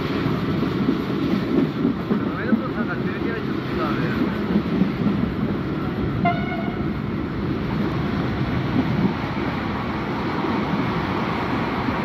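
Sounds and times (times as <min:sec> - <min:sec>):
train rumbling on rails: 0:00.0 - 0:12.0
train horn toot: 0:06.2 - 0:07.0.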